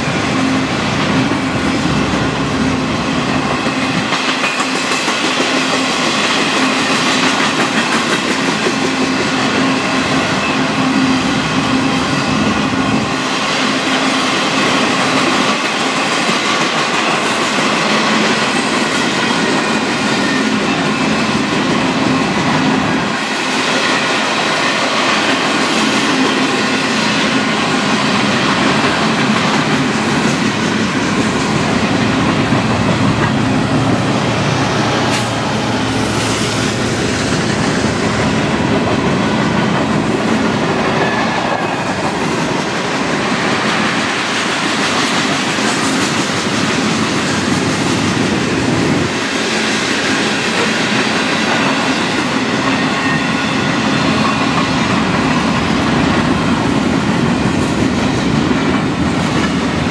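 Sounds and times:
steel wheels on rails: 0.0s - 59.9s
locomotive engine passing: 20.6s - 52.2s.

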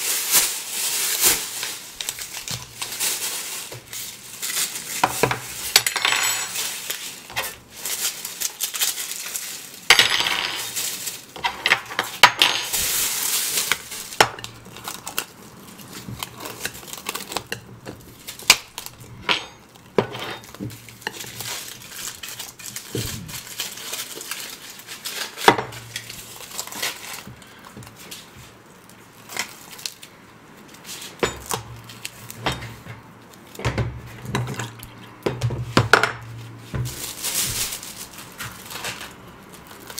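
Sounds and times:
plastic bag rustling: 0.0s - 39.9s
plates and containers clinking: 5.0s - 7.6s, 19.0s - 21.6s.

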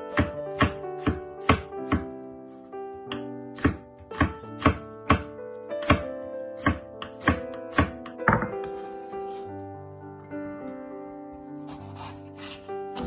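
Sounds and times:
background music: 0.0s - 13.0s
knife chopping on wooden board: 0.1s - 2.1s, 3.1s - 8.8s.

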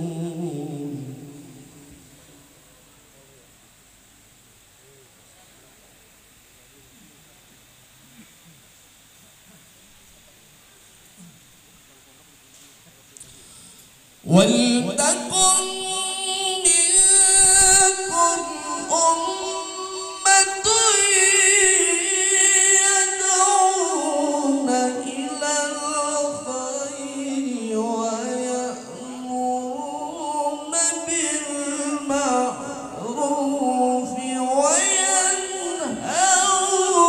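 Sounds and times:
man reciting melodically over loudspeakers: 0.0s - 2.8s, 14.2s - 37.0s.

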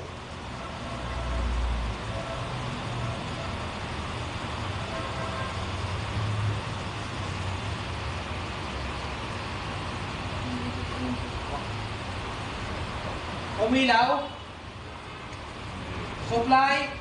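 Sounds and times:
low wavering hum: 2.7s - 12.9s
background rumble and hiss: 5.6s - 17.0s.

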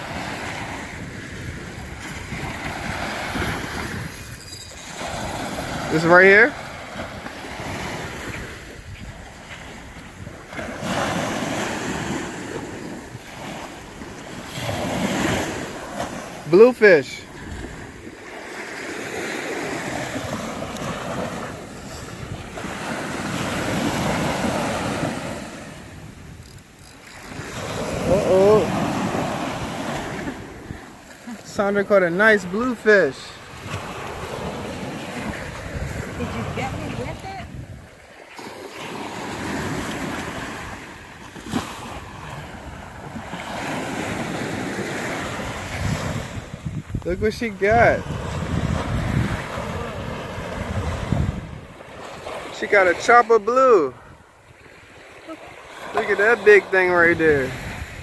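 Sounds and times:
wind on microphone: 0.0s - 16.4s, 17.3s - 18.3s, 19.4s - 31.1s, 32.9s - 38.0s, 39.3s - 52.3s, 57.1s - 58.0s
surf washing up beach: 0.0s - 58.0s.

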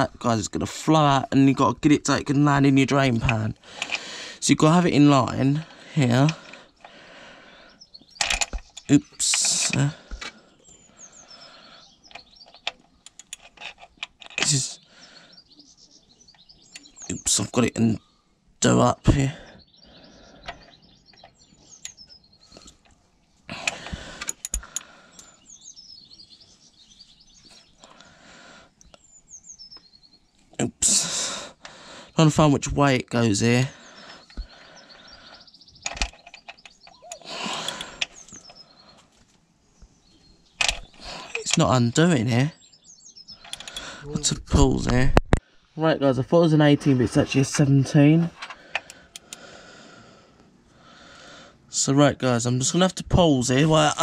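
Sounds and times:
birds chirping faintly: 0.0s - 54.0s
ratchet clicks and metal knocks: 8.1s - 10.4s, 12.0s - 14.6s, 22.6s - 25.3s, 35.8s - 38.6s, 43.4s - 43.9s.

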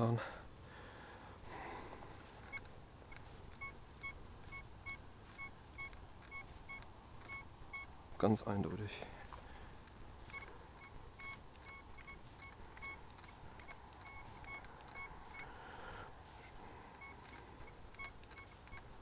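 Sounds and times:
metal detector beeps: 2.3s - 7.9s, 10.2s - 15.6s, 16.4s - 19.0s.

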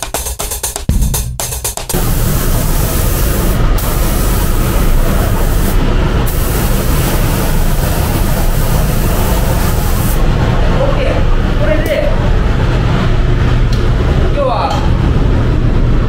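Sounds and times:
air spray gun hissing: 1.9s - 10.2s
low rumble of booth airflow: 1.9s - 16.0s.

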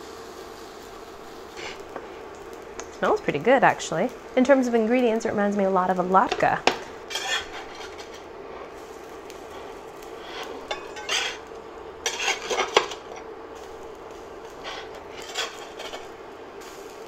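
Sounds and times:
frying sizzle: 0.0s - 17.0s
metal spatula scraping a skillet: 7.1s - 8.3s, 10.1s - 13.2s, 14.6s - 16.1s.

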